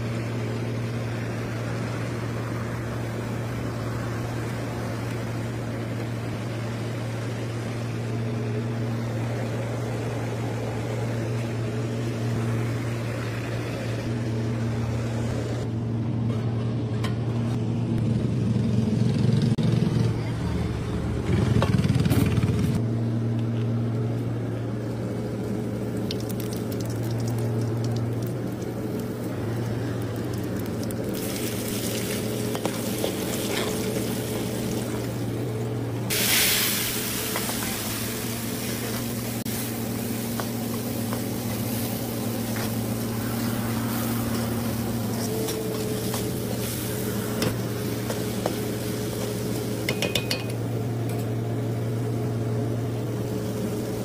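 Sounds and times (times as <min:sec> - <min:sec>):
food frying in hot oil: 0:25.3 - 0:54.0.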